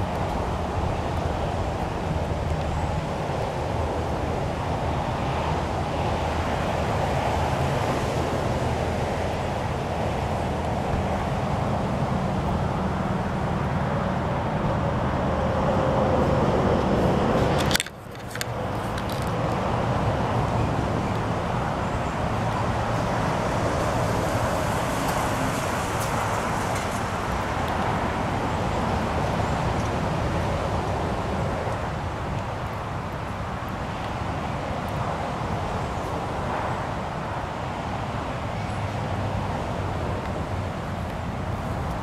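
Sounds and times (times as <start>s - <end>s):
outdoor background rumble: 0.0s - 42.0s.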